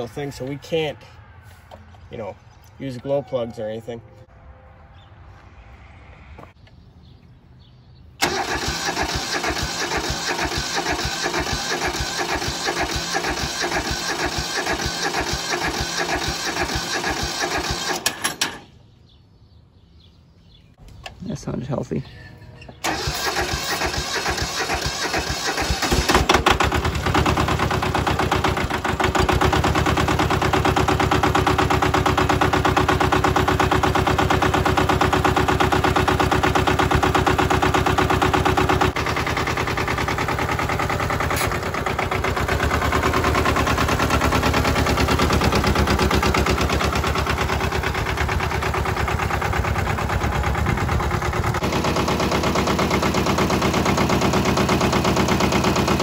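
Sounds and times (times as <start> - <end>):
diesel engine clattering: 8.2 - 18.8, 22.3 - 56.0.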